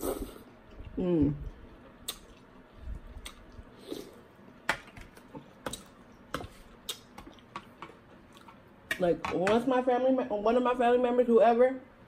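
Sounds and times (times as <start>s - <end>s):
person chewing: 0.0s - 8.6s.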